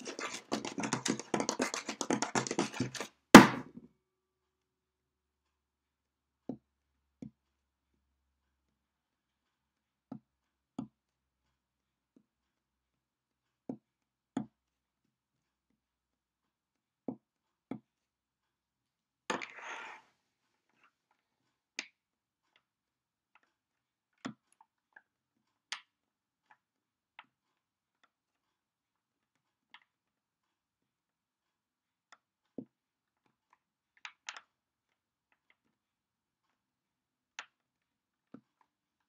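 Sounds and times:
fingers tapping on wooden table: 0:00.0 - 0:03.6
hand brushing on table: 0:00.0 - 0:03.6, 0:19.3 - 0:20.0.

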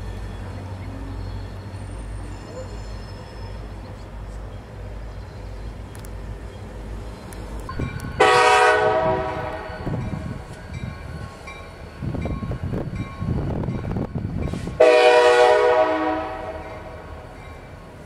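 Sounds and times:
diesel locomotive rumbling past: 0:00.0 - 0:18.0
locomotive air horn blast: 0:08.2 - 0:09.8, 0:14.5 - 0:17.1.

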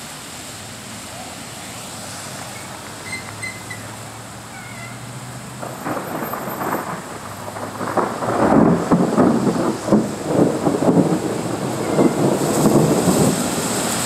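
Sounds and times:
rolling thunder: 0:05.6 - 0:14.0.

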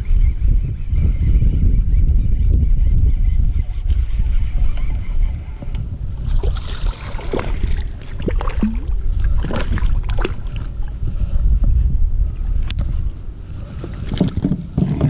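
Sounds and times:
wind rumbling on microphone: 0:00.0 - 0:15.0
water slapping kayak hull: 0:05.6 - 0:11.8, 0:12.4 - 0:15.0.

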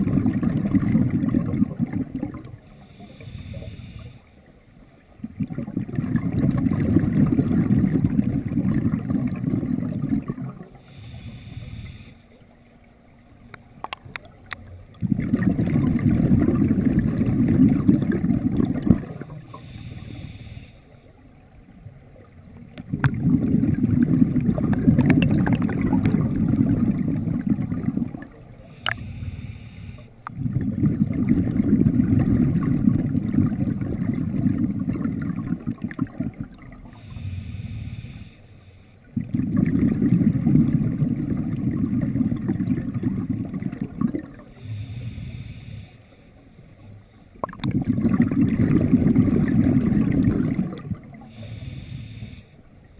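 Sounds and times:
bubbling exhalations underwater: 0:00.0 - 0:02.6, 0:05.2 - 0:10.8, 0:15.0 - 0:19.4, 0:22.8 - 0:29.0, 0:30.3 - 0:36.8, 0:39.2 - 0:44.4, 0:47.4 - 0:51.3
regulator hissing inhalations: 0:02.8 - 0:04.4, 0:10.8 - 0:12.4, 0:19.5 - 0:21.0, 0:28.7 - 0:30.2, 0:36.9 - 0:39.0, 0:44.5 - 0:46.4, 0:51.3 - 0:52.7.

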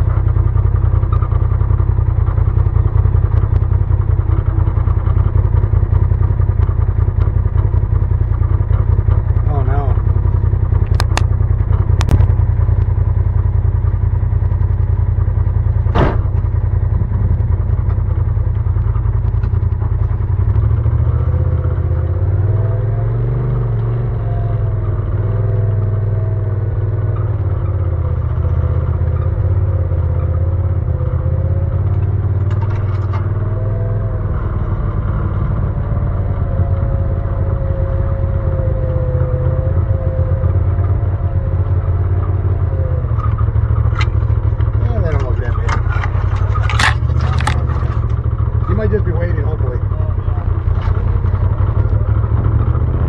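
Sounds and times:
off-road vehicle engine droning: 0:00.0 - 0:53.0
sharp knocks: 0:15.9 - 0:16.5.

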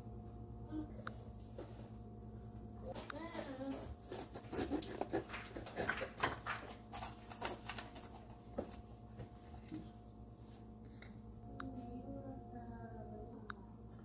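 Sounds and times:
knife cutting crisp pepper: 0:04.1 - 0:06.3.

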